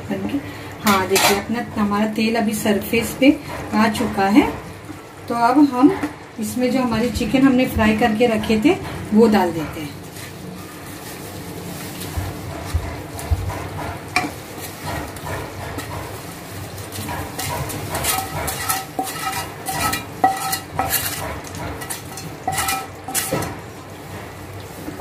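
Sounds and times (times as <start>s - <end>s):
wooden spatula scraping metal pan: 13.5s - 23.6s.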